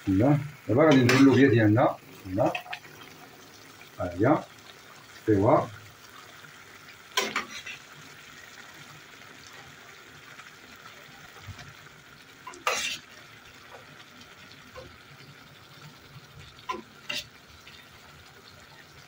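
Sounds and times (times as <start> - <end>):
sauce simmering and sizzling: 0.0 - 19.0
spoon stirring in a pan: 0.8 - 1.5, 7.1 - 8.0, 12.5 - 14.0, 16.4 - 17.9.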